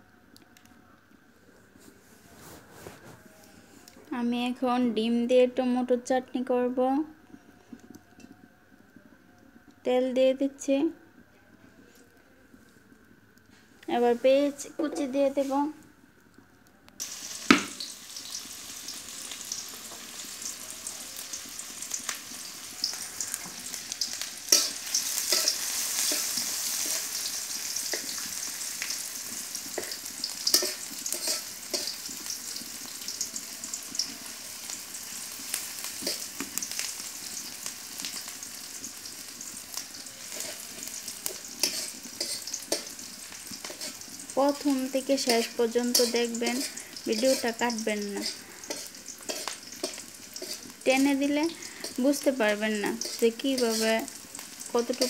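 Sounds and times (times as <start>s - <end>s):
onions sizzling in oil: 13.9s - 15.9s, 17.0s - 55.0s
spatula scraping and tapping pot: 24.5s - 27.2s, 29.6s - 32.2s, 36.0s - 36.5s, 40.3s - 44.2s, 45.2s - 52.3s, 52.9s - 54.1s.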